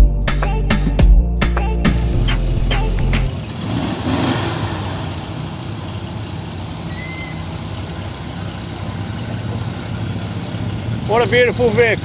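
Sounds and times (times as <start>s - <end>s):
background music: 0.0s - 3.6s
sports car engine driving past: 3.3s - 12.0s.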